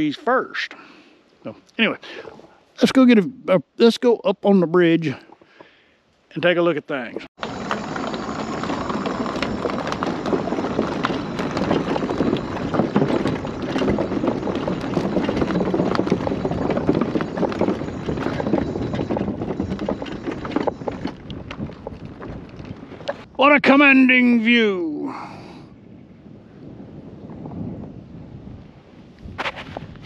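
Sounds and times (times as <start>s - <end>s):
scooter wheels rumbling on planks: 7.4s - 23.3s.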